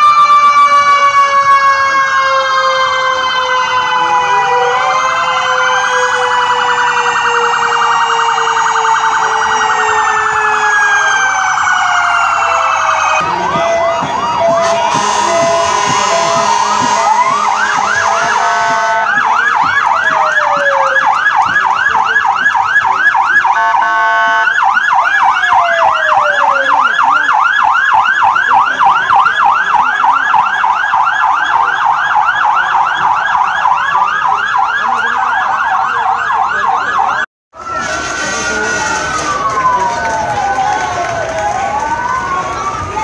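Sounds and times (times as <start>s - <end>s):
siren wail: 0.0s - 43.0s
siren yelp: 0.0s - 43.0s
short steady horn tones: 14.5s - 19.1s, 23.6s - 24.4s.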